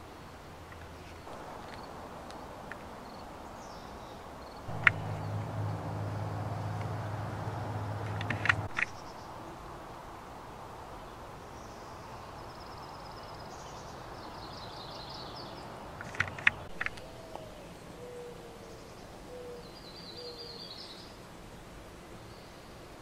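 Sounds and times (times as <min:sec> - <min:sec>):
sharp clicks: 0:04.7 - 0:09.0, 0:16.0 - 0:17.0.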